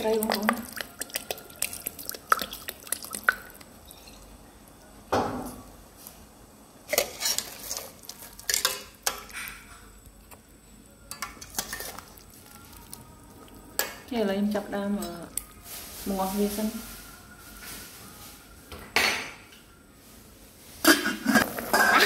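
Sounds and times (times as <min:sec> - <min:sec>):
utensils and dishes clattering: 0:03.8 - 0:04.3, 0:06.9 - 0:09.9, 0:11.1 - 0:12.2.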